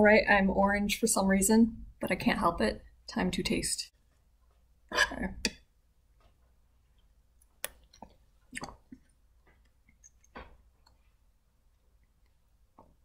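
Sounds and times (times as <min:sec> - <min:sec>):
soft sipping and mouth sounds: 0:06.8 - 0:12.5.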